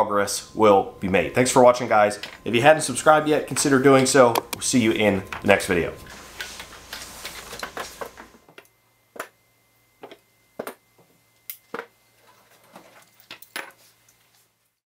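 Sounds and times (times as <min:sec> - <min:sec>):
metal tools clinking on wood: 0:12.2 - 0:13.8.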